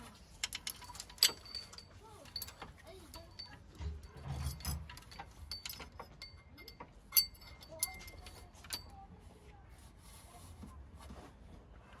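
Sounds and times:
metallic clicks of timing chain: 0:00.3 - 0:08.9.

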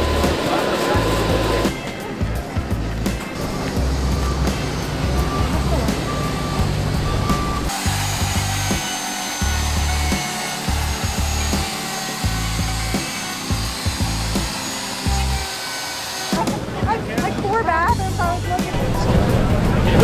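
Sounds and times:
wood router cutting wood: 0:00.0 - 0:01.8, 0:03.4 - 0:16.8
background music with bass: 0:00.0 - 0:20.0.

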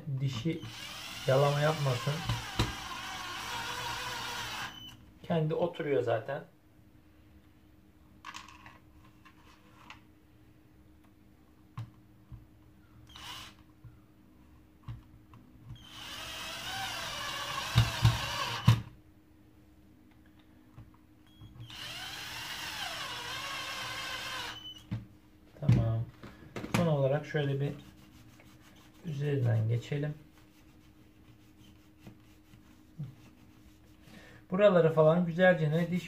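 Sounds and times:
cordless screwdriver whining: 0:00.6 - 0:05.0, 0:13.1 - 0:13.6, 0:21.6 - 0:24.8.

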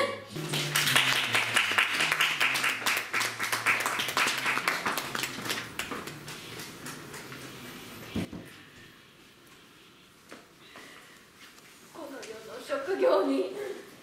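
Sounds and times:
audience applauding: 0:00.4 - 0:07.6.

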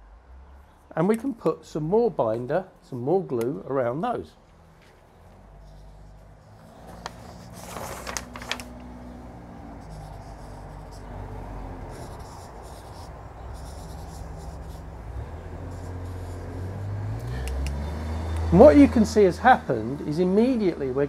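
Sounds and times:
marker pen scratching on paper: 0:05.6 - 0:08.0, 0:09.5 - 0:17.0
paper clicks and rustle: 0:06.8 - 0:09.0.

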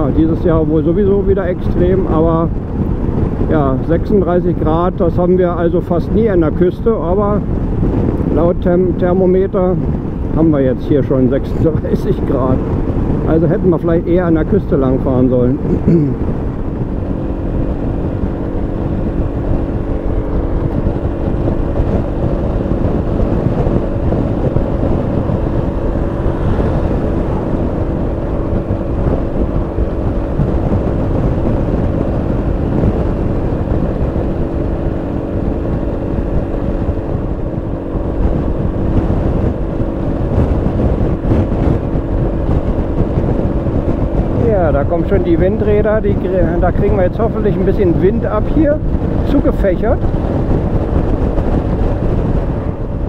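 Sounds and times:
wind noise on microphone: 0:00.0 - 0:53.0
scooter engine running: 0:15.6 - 0:46.4.

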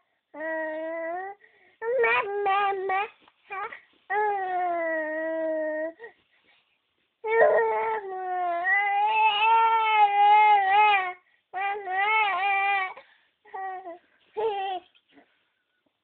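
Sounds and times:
baby crying: 0:07.2 - 0:14.9.

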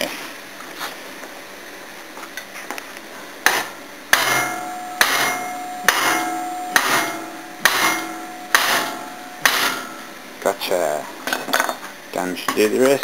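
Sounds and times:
hammer striking steel bar: 0:03.5 - 0:10.2.

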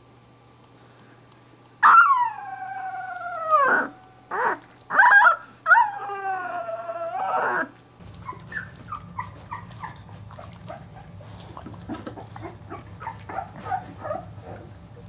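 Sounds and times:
puppy crying: 0:01.8 - 0:11.2, 0:12.1 - 0:14.7
puppy howling: 0:01.8 - 0:11.2, 0:12.2 - 0:14.7.

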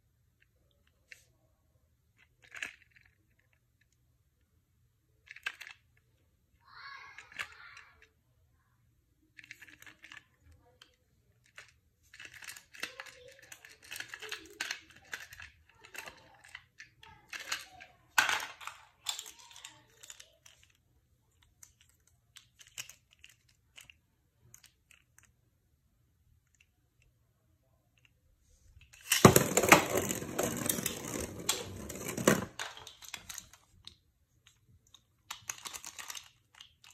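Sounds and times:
plastic clicks: 0:09.4 - 0:25.4, 0:28.8 - 0:36.9
spinning top clattering in plastic arena: 0:29.0 - 0:33.6.

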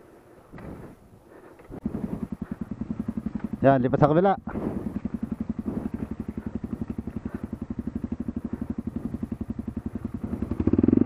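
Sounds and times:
motorcycle engine chugging: 0:01.6 - 0:11.0.

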